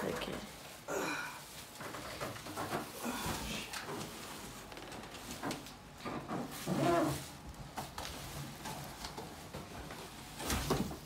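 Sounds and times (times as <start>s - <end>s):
cardboard and foam scraping: 6.3s - 7.4s.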